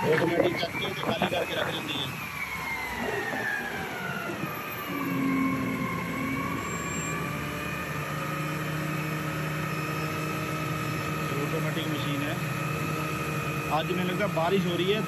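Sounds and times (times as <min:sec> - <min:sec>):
truck whine: 0:00.0 - 0:15.0
garbage truck passing: 0:02.1 - 0:11.3.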